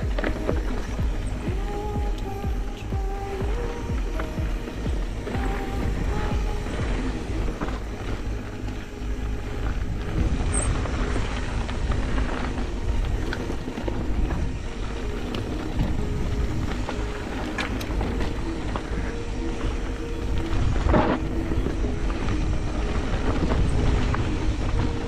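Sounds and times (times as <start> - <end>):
bike rolling and rattling: 0.0 - 25.0
wind rumble on microphone: 0.0 - 25.0.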